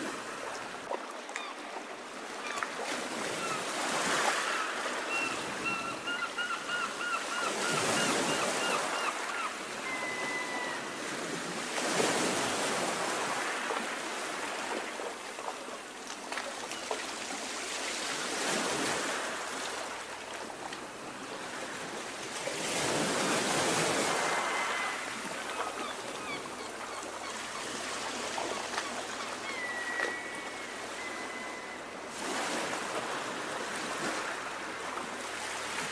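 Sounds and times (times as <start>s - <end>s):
sea waves washing ashore: 0.0s - 35.9s
faint high calls: 24.2s - 27.4s, 29.2s - 32.0s.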